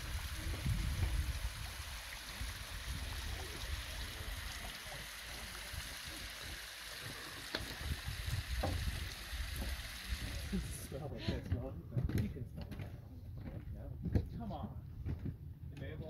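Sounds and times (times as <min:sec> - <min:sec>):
wind buffeting microphone: 0:00.0 - 0:04.6, 0:07.7 - 0:10.6
steady outdoor hiss: 0:00.0 - 0:11.5.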